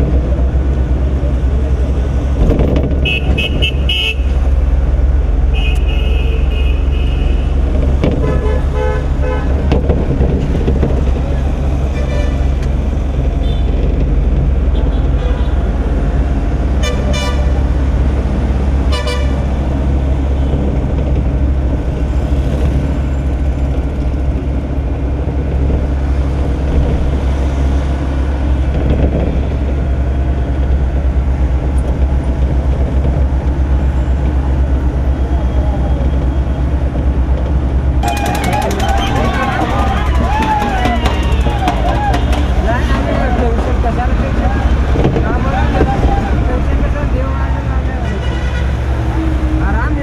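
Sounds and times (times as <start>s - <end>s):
road noise: 0.0s - 50.0s
vehicle engine drone: 0.0s - 50.0s
vehicle horn toots: 3.0s - 4.3s, 5.5s - 7.6s, 8.2s - 9.6s, 18.9s - 19.4s, 38.0s - 42.6s.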